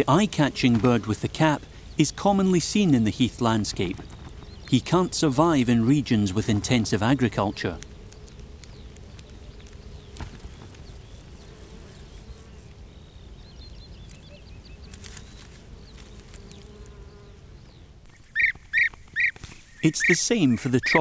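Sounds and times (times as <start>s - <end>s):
insects buzzing: 0.0s - 21.0s
faint high bird chirps: 8.6s - 21.0s.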